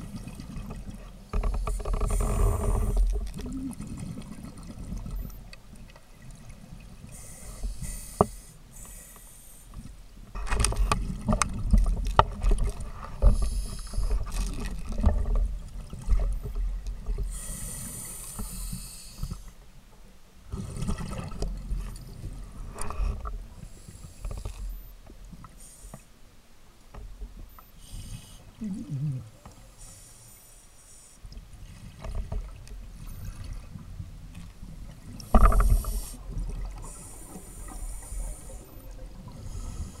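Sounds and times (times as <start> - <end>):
exhaled bubbles gurgling: 2.2 - 5.3, 28.6 - 29.4.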